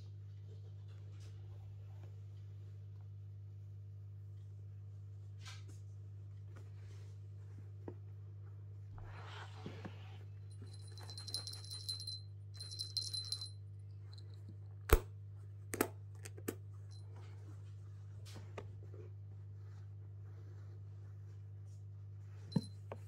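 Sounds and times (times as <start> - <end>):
low hum: 10.4 - 14.5
small jingle bell: 10.5 - 14.4, 22.5 - 22.8.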